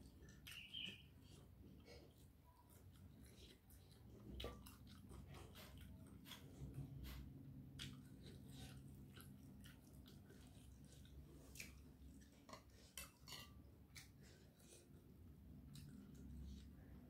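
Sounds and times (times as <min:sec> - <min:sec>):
low steady hum: 0:00.0 - 0:17.0.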